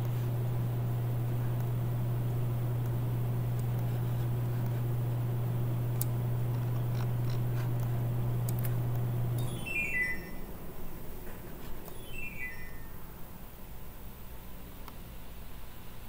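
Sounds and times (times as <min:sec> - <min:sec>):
steady low hum: 0:00.0 - 0:16.0
falling run of high beeps: 0:09.4 - 0:10.5, 0:11.9 - 0:13.1.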